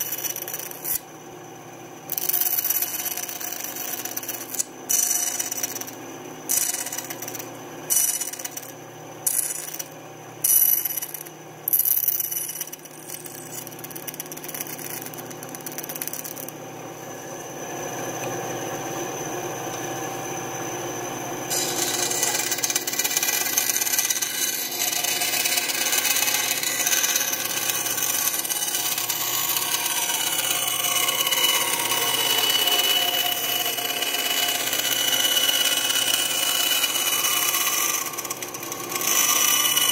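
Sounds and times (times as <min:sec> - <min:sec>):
bandsaw cutting plywood: 0:21.5 - 0:39.9.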